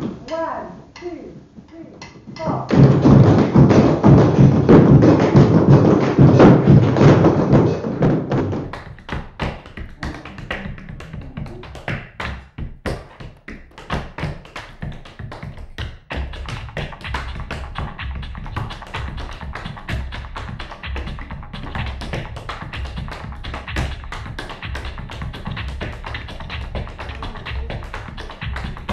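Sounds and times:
tap shoes striking floor: 0:02.3 - 0:28.9.

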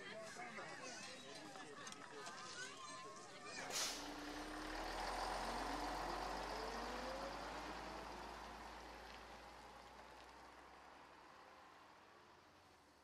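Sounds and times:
heavy vehicle engine pulling away: 0:03.4 - 0:13.0.

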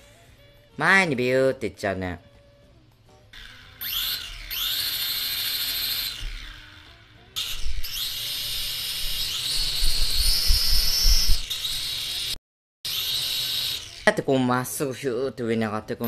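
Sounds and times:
toy drone motors whining: 0:03.3 - 0:14.3.

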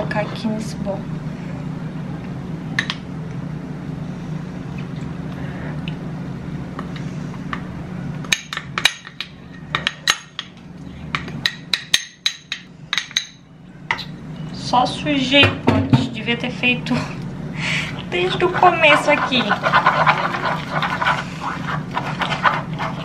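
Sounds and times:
steady low hum: 0:00.0 - 0:23.0
spoon scraping glass bowl: 0:18.3 - 0:23.0.

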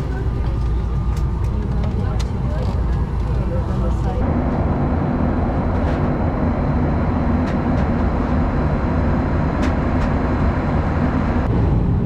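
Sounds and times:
jet cabin rumble: 0:00.0 - 0:12.0.

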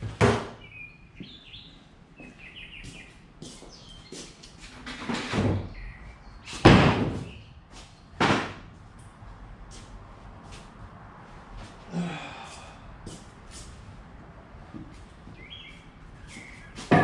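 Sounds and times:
wooden thumps and knocks: 0:16.8 - 0:17.0.

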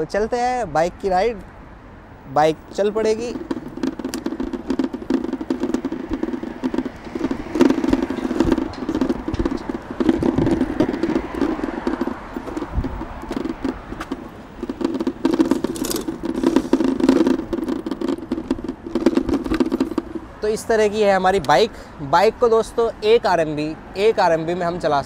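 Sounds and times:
city street traffic: 0:00.0 - 0:25.0
clicks and rattles: 0:02.7 - 0:20.2.

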